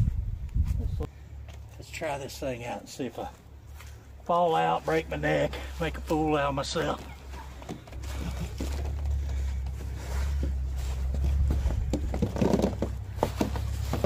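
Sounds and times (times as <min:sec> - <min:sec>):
hammock fabric rustling: 0:02.8 - 0:14.0.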